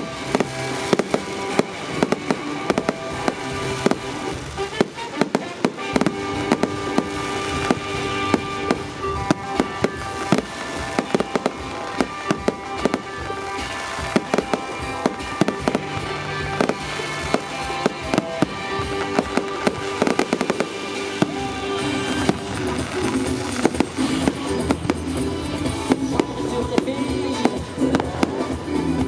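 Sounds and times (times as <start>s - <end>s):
fireworks bangs and crackles: 0.0s - 29.0s
music playing: 0.0s - 29.0s.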